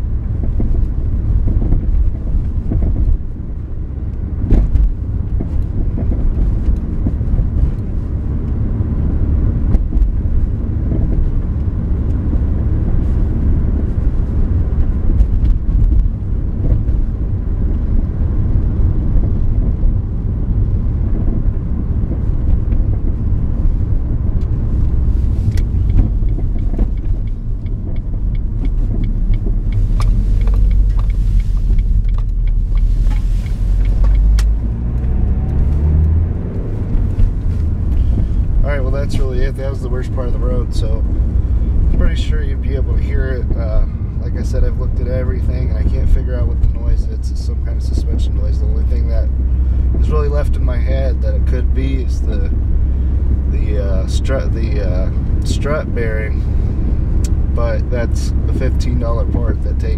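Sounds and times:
road rumble inside car: 0.0 - 59.9
suspension knocks: 21.0 - 42.1.

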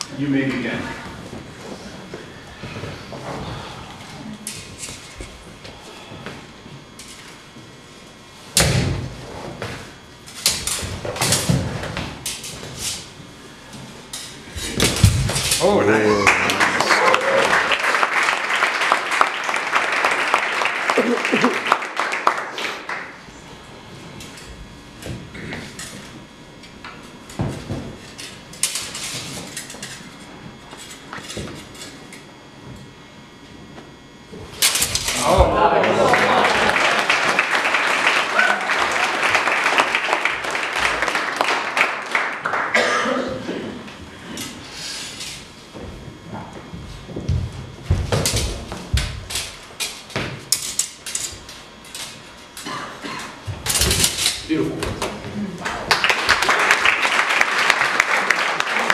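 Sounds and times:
feet stamping on wooden floor: 45.7 - 49.2.

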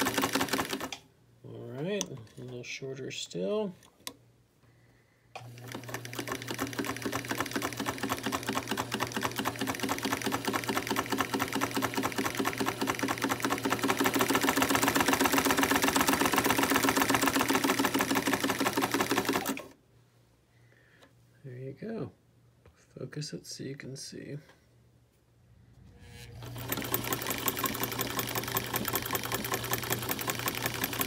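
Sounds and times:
sewing machine clatter: 0.0 - 1.0, 5.4 - 19.7, 26.4 - 31.0
electric motor hum: 25.7 - 29.5.

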